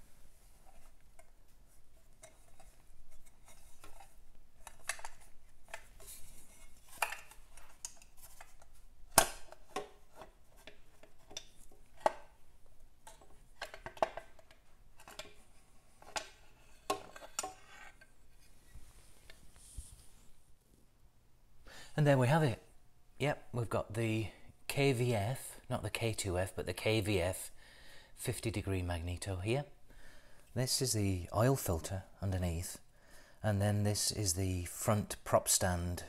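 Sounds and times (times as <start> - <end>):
light metallic clicks and scrapes: 0.6 - 12.3, 13.0 - 20.1.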